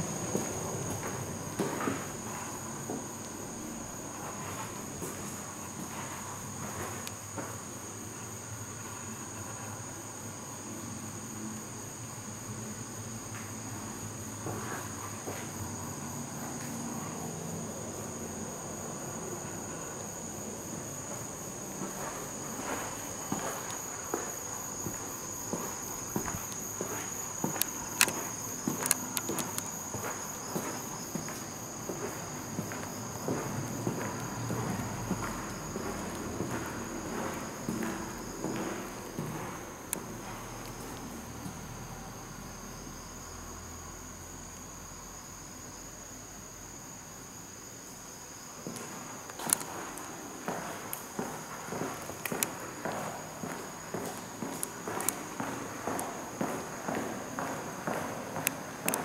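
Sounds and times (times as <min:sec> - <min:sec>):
insects chirring: 0:00.0 - 0:59.0
footsteps on concrete: 0:21.0 - 0:41.0, 0:48.6 - 0:59.0.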